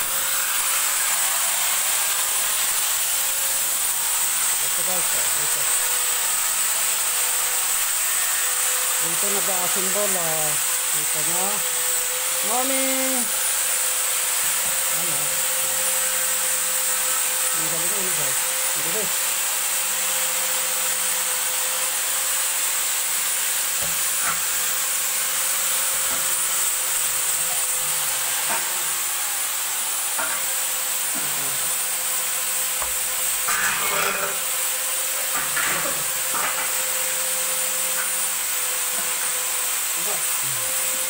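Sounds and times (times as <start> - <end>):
steel tubes clanking: 33.3 - 34.4.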